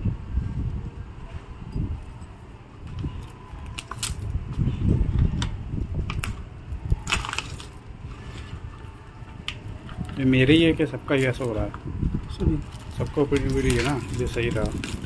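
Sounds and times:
plastic bag crackling: 6.2s - 15.0s.

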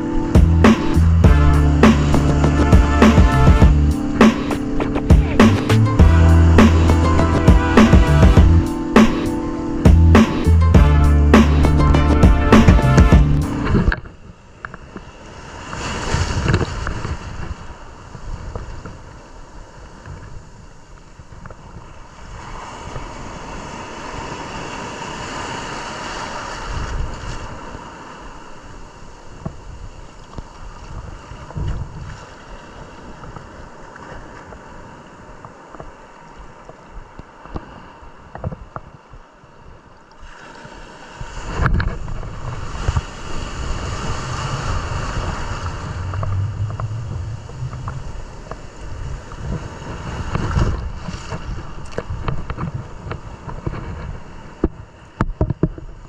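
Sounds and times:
ocean surf breaking: 0.0s - 56.0s
wind buffeting microphone: 30.6s - 35.9s, 41.2s - 56.0s.

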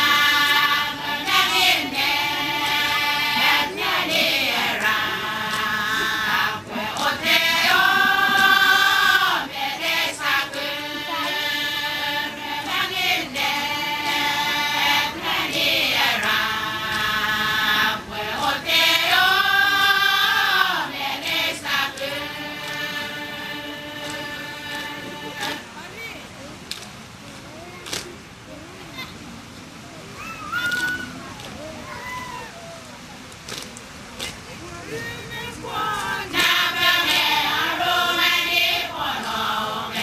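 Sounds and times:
women singing chant together: 0.0s - 26.0s, 34.8s - 40.0s.

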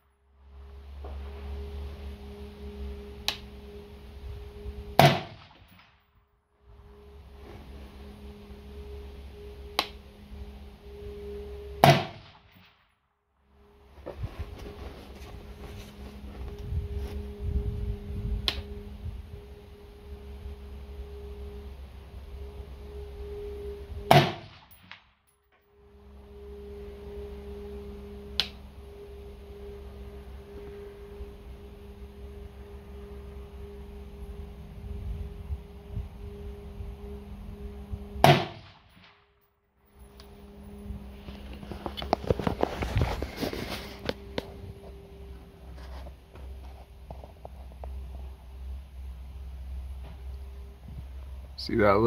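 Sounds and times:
steady hum: 0.0s - 52.0s
sharp click: 3.2s - 3.5s, 9.7s - 10.0s, 28.4s - 28.6s
rifle shot with ringing echo: 5.0s - 5.8s, 11.8s - 12.8s, 24.1s - 25.0s, 38.2s - 39.2s.

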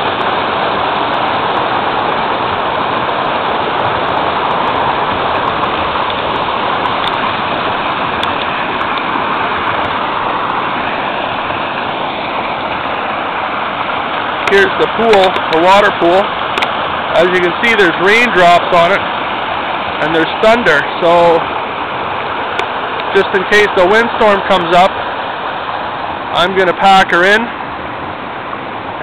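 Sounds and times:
waterfall rushing over rocks: 0.0s - 29.0s
light rain ticking: 4.4s - 10.6s.

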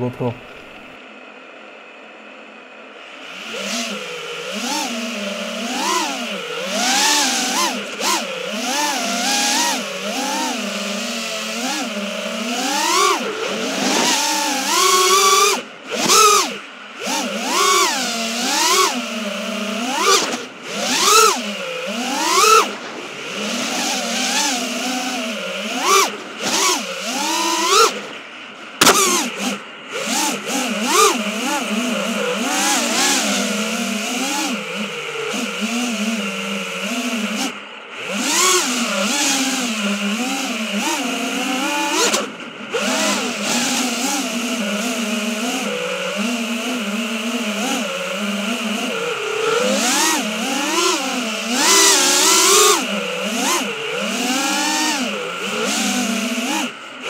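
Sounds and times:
drone motors whining: 0.0s - 57.0s
sharp click: 28.8s - 29.2s.

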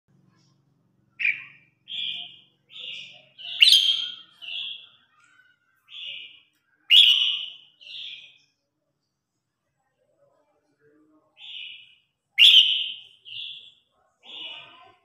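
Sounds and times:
bird singing burry notes: 1.2s - 5.0s, 5.9s - 8.4s, 11.4s - 13.8s.

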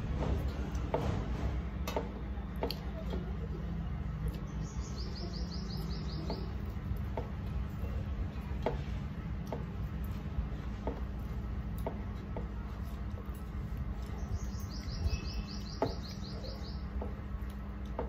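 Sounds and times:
low steady hum: 0.0s - 18.0s
bird chirping: 4.3s - 6.8s, 14.0s - 17.2s.

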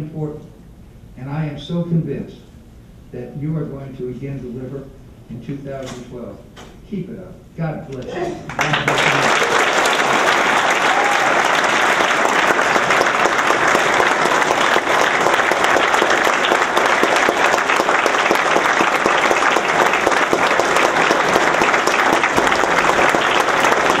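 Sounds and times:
audience applauding: 8.4s - 24.0s.

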